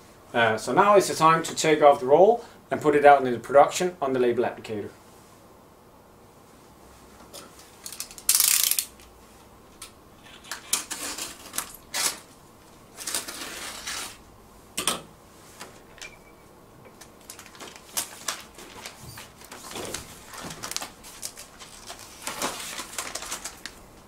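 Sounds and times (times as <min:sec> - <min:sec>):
paper labels scraping: 0:10.2 - 0:12.3, 0:13.0 - 0:14.2.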